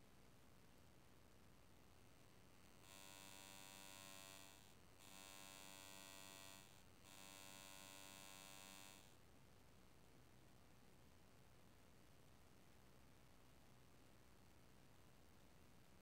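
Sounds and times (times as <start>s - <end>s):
faint electrical buzzes: 1.8s - 9.2s.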